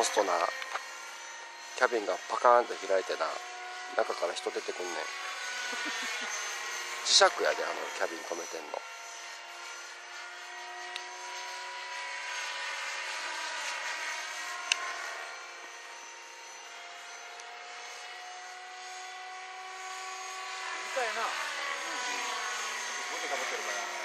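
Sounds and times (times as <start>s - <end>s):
rc helicopter whine: 0.0s - 24.0s.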